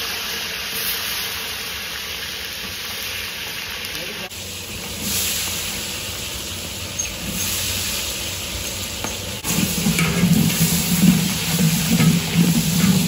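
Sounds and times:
frying sizzle in a pot: 0.0 - 13.0
ladle stirring: 8.6 - 13.0.

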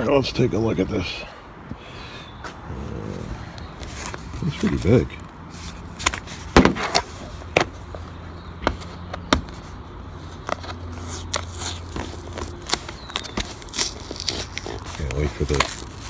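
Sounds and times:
fingernails scratching packing tape: 10.6 - 16.0.

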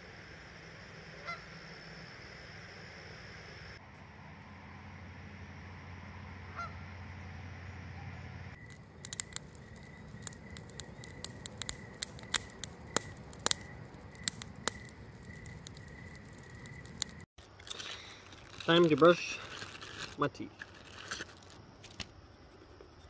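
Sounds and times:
campfire crackling and popping: 8.5 - 22.7.

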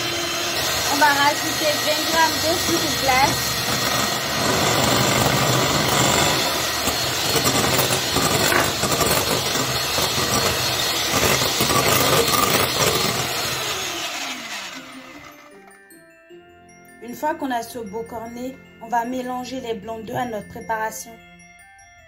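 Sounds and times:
electric hand mixer whirring: 0.0 - 15.8.

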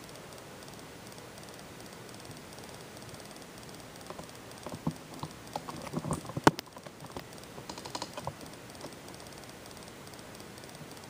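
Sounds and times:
sharp click: 0.1 - 11.0
plastic clicks and knocks: 4.1 - 9.0.

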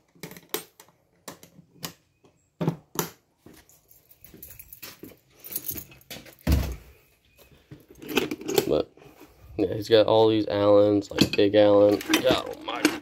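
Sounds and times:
tools clicking and knocking on shelves: 0.0 - 6.8, 7.7 - 9.2, 10.9 - 13.0.

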